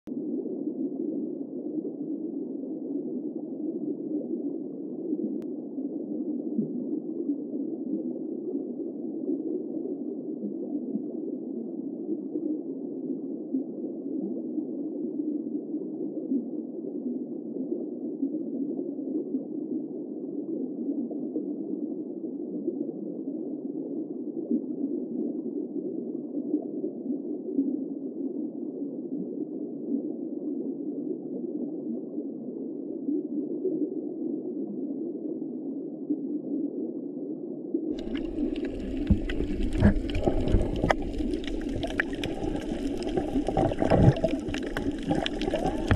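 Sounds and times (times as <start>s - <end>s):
muffled underwater water noise: 0.1s - 45.9s.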